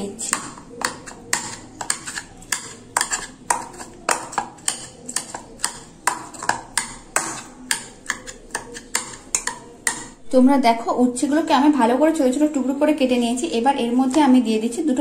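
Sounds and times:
spatula tapping bowl bottom: 0:00.2 - 0:10.2.

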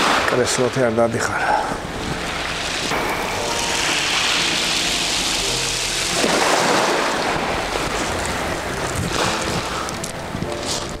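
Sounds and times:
waves washing on shore: 0:00.0 - 0:00.9, 0:01.5 - 0:11.0
wind on microphone: 0:06.3 - 0:11.0.

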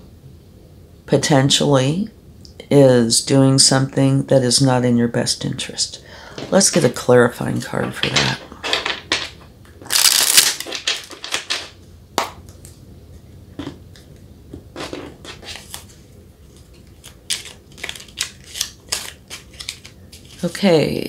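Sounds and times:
cards being shuffled: 0:07.8 - 0:11.8, 0:14.8 - 0:20.6.

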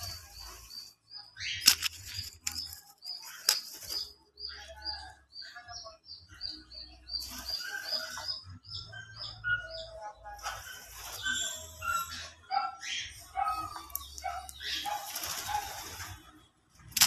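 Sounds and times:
wings flapping: 0:14.9 - 0:16.2.

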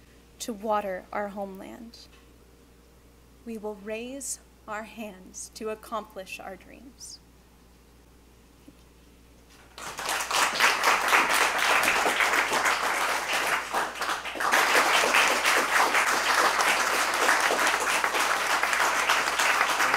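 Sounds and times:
audience applauding: 0:09.7 - 0:19.9.

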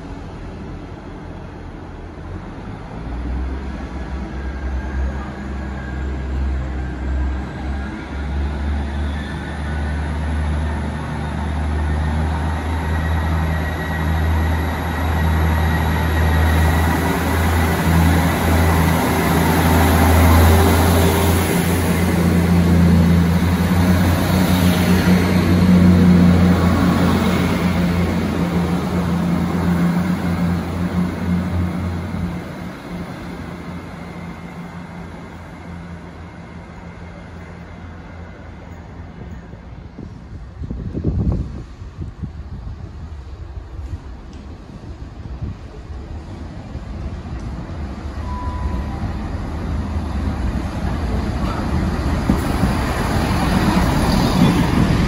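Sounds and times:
diesel train engines droning: 0:00.0 - 0:55.0.

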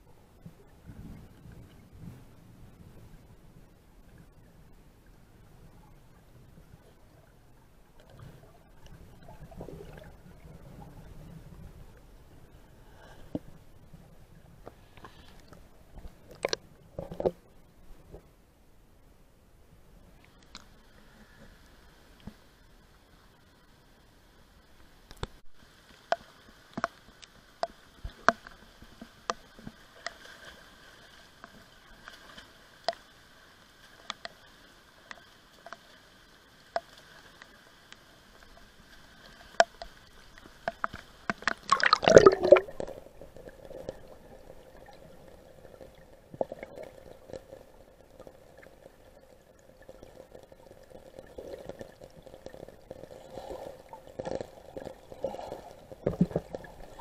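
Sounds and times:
water sloshing and dripping: 0:38.3 - 0:50.5
sharp water drips: 0:39.5 - 0:43.0
muffled gurgling: 0:40.7 - 0:57.0.

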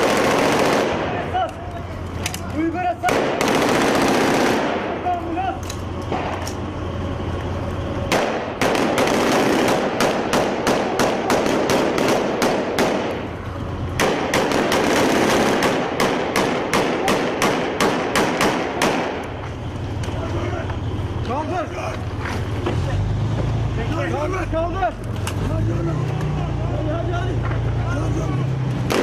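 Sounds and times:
rifle gunshots: 0:00.0 - 0:01.4, 0:03.0 - 0:05.0, 0:08.1 - 0:13.3, 0:14.0 - 0:19.2.

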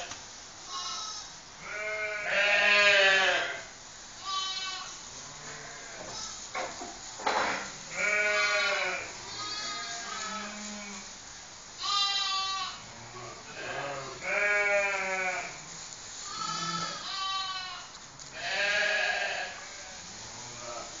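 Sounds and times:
sheep bleating: 0:00.7 - 0:06.4, 0:07.6 - 0:11.0, 0:11.8 - 0:15.6, 0:16.2 - 0:20.0.

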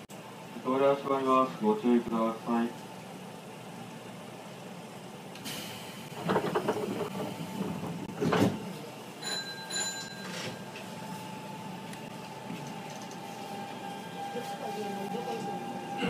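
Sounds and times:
air hiss: 0:05.4 - 0:06.2
train doors shutting thud: 0:05.4 - 0:08.8.

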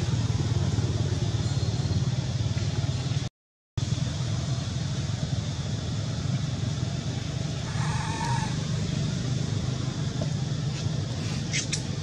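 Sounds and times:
steady low hum: 0:00.0 - 0:12.0
macaque call: 0:07.6 - 0:08.9.

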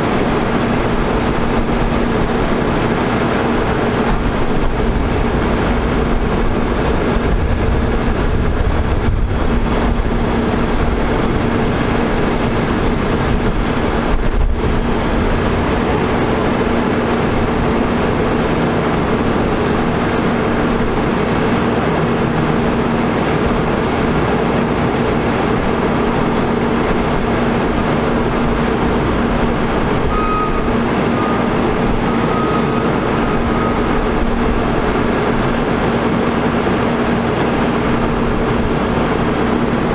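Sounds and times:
diesel truck engine running: 0:00.0 - 0:39.9
faint high whine: 0:30.0 - 0:34.4.

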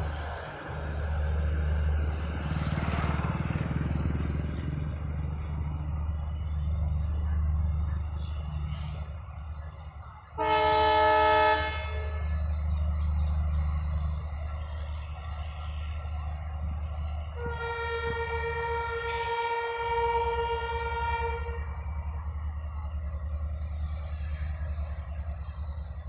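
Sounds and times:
low rumble of trains: 0:00.0 - 0:26.0
locomotive horn blast: 0:10.3 - 0:12.4, 0:17.4 - 0:21.8.

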